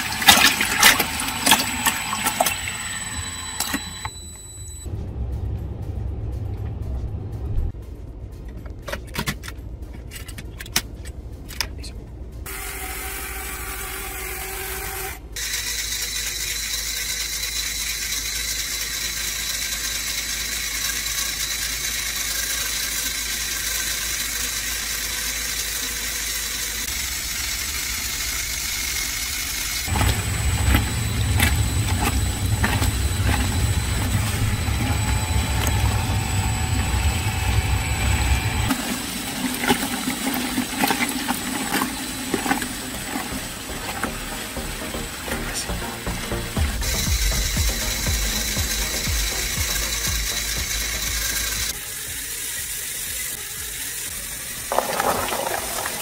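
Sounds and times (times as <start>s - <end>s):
toy motor whirring: 12.5s - 37.6s, 46.8s - 56.0s.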